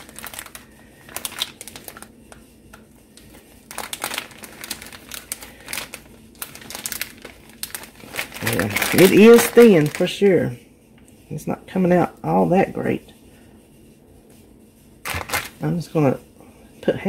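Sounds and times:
plastic packaging crinkling: 0.0 - 10.3, 15.0 - 15.8.

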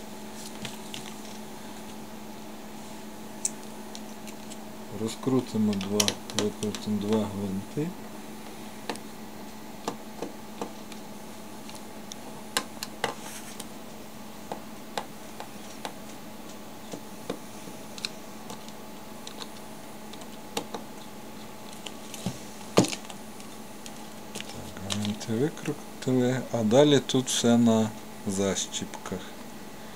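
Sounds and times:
screwdriver clicking on plastic: 5.7 - 7.2.

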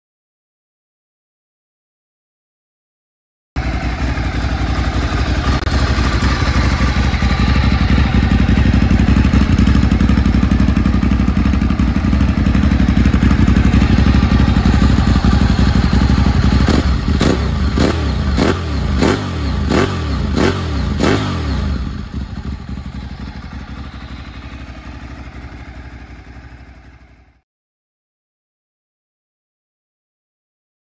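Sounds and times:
motorcycle throttle blips: 3.6 - 27.2
motorcycle engine running: 3.6 - 27.4.

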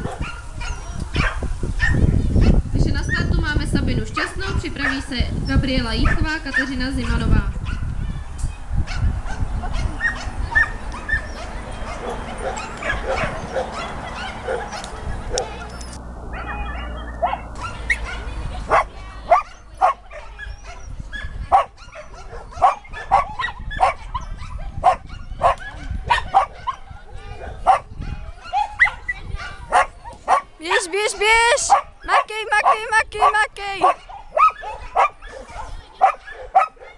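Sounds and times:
small dog barking: 0.0 - 2.6, 8.9 - 15.6, 16.4 - 30.5, 31.1 - 36.9
murmur of voices: 0.0 - 36.9.

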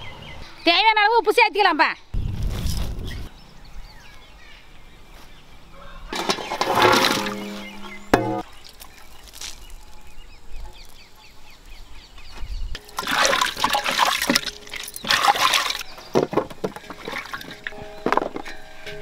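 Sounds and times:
water sloshing in metal pot: 6.2 - 9.0, 12.8 - 17.8.

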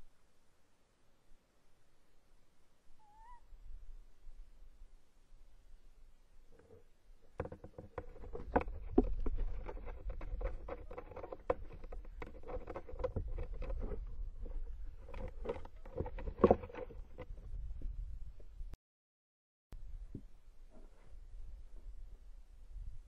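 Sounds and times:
owl scratching in wooden nest box: 7.4 - 17.3.

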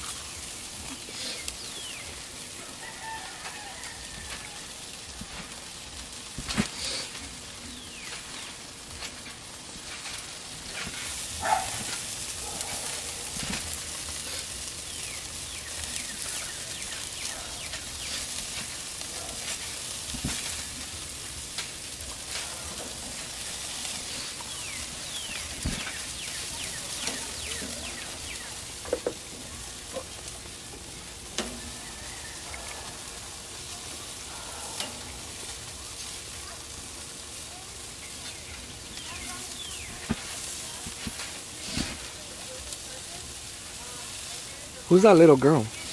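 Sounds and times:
meat sizzling on a grill: 0.0 - 45.9
metal tongs clicking on grate: 31.3 - 31.6.

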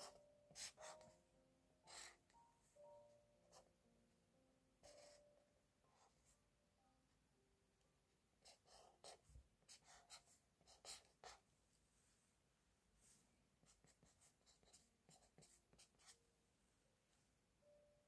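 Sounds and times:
marker scratching on paper: 0.0 - 1.2, 1.9 - 2.2, 8.4 - 11.4, 13.6 - 16.2.

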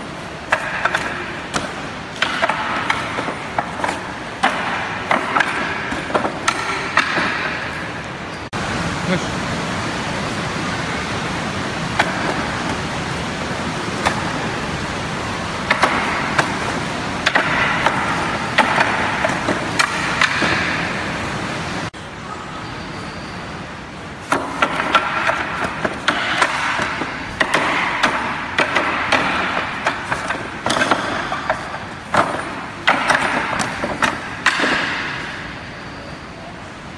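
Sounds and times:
steady background noise: 0.0 - 36.9
strikes on wooden dummy: 0.4 - 7.9, 12.0 - 12.8, 15.6 - 21.1, 24.2 - 35.5.

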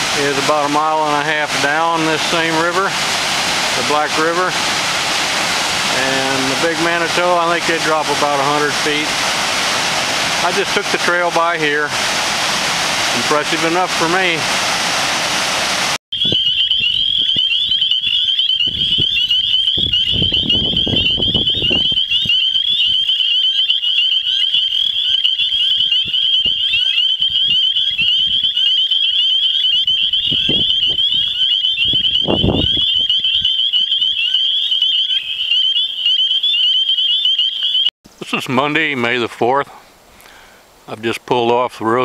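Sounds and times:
chorus of frogs peeping: 16.1 - 37.9.

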